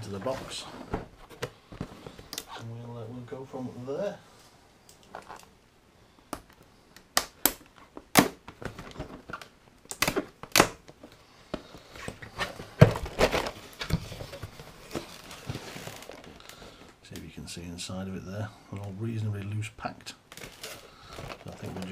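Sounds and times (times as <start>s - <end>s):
cardboard scraping and rustling: 0.1s - 2.3s, 11.9s - 16.4s, 20.4s - 21.9s
cardboard snapping and cracking: 6.4s - 11.0s.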